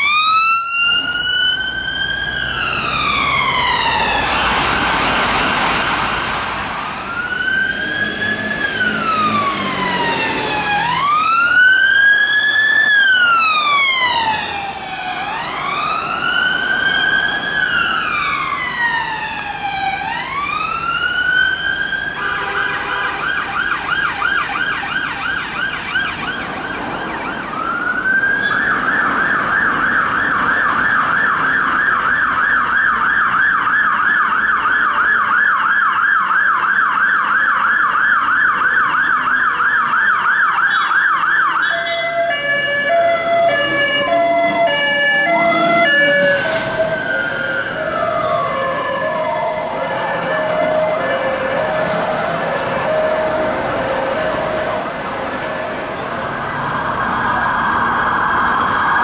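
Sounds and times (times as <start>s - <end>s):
siren wailing: 0.0s - 59.0s
siren fast yelp: 26.8s - 59.0s.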